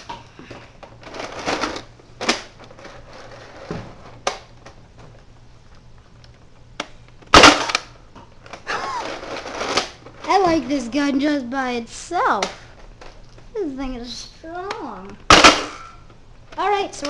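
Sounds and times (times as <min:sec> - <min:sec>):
toy blaster firing pop: 0:07.3 - 0:07.9, 0:15.3 - 0:15.8.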